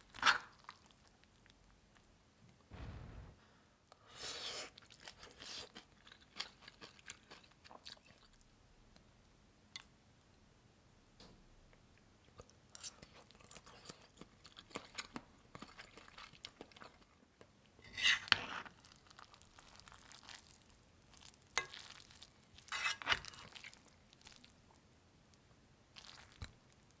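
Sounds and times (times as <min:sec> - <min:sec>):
chewing: 0:04.8 - 0:08.4, 0:12.3 - 0:17.5, 0:18.7 - 0:24.8, 0:26.0 - 0:26.7
metal spoon scraping a pot: 0:17.8 - 0:18.6, 0:22.7 - 0:23.3.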